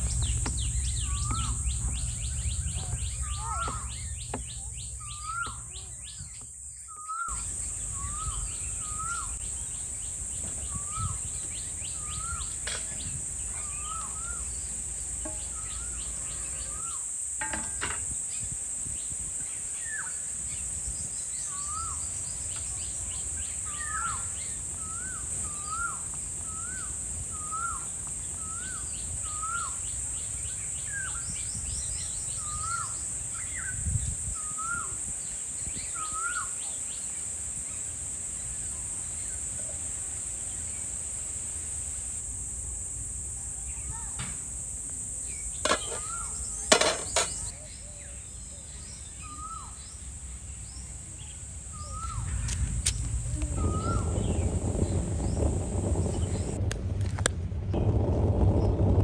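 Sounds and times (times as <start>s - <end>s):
bird calling: 0.0s - 17.0s, 45.7s - 49.8s, 51.7s - 54.5s
high insect drone: 0.0s - 59.0s.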